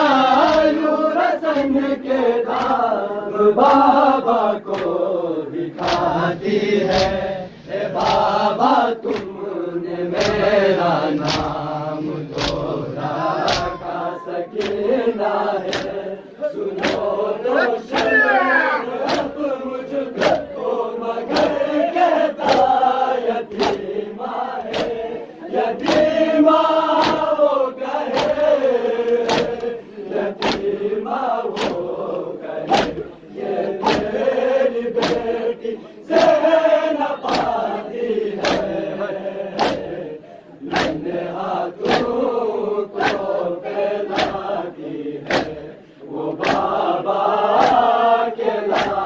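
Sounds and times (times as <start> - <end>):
men chanting in unison: 0.0 - 49.0
hand slaps on bare chests: 0.3 - 0.8, 2.5 - 2.9, 3.6 - 4.0, 4.7 - 5.1, 5.7 - 6.2, 6.8 - 7.2, 8.0 - 8.4, 9.0 - 9.4, 10.1 - 10.5, 11.1 - 11.6, 12.3 - 12.7, 13.4 - 14.9, 15.6 - 16.0, 16.7 - 17.2, 17.8 - 18.4, 19.0 - 19.4, 20.1 - 20.5, 21.3 - 21.6, 22.4 - 22.8, 23.5 - 23.9, 24.6 - 25.0, 25.8 - 26.2, 26.9 - 27.3, 28.1 - 29.7, 30.4 - 30.8, 31.5 - 31.9, 32.6 - 33.1, 33.8 - 34.3, 34.9 - 35.4, 36.1 - 36.4, 37.2 - 37.6, 38.4 - 38.8, 39.5 - 40.0, 40.6 - 41.1, 41.8 - 42.3, 43.0 - 43.4, 44.0 - 44.6, 45.2 - 45.6, 46.3 - 46.8, 47.5 - 48.0, 48.6 - 49.0.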